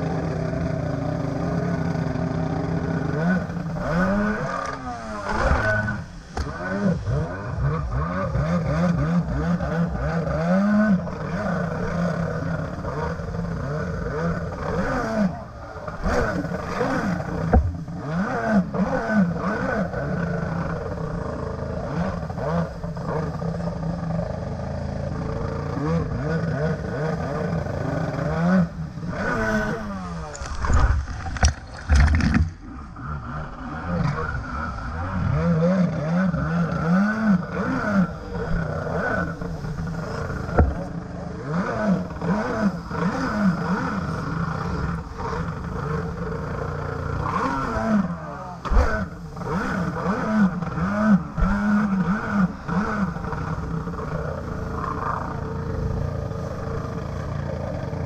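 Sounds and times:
jet ski engine revving: 0:00.0 - 0:58.0
water slapping the hull: 0:11.0 - 0:23.7, 0:29.1 - 0:33.0.

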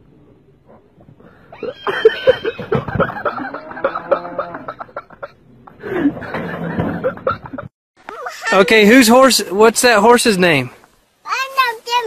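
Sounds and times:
laughter in rapid bursts: 0:01.8 - 0:08.4.

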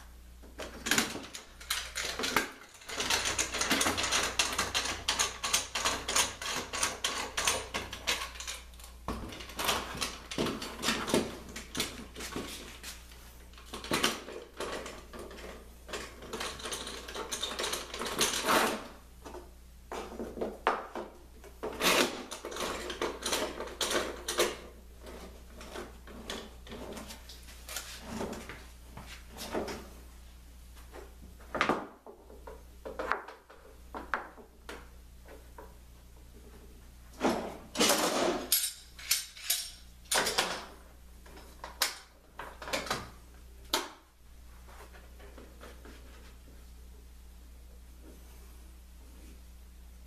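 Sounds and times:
bar clamps clicking and scraping: 0:37.8 - 0:40.7.

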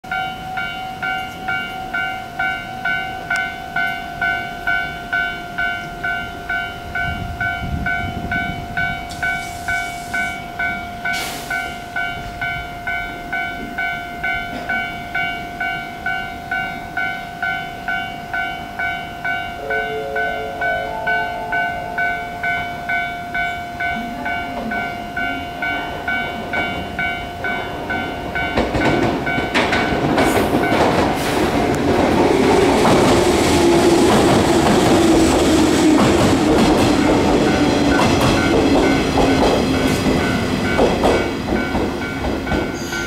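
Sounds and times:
electronic warning bell dinging: 0:00.1 - 0:30.0
electric train rumble: 0:00.1 - 0:43.0.

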